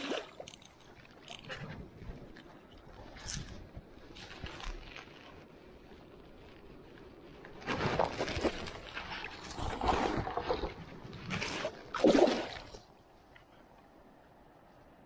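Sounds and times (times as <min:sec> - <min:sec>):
fish splashing in shallow water: 0:00.0 - 0:03.7, 0:07.7 - 0:13.0.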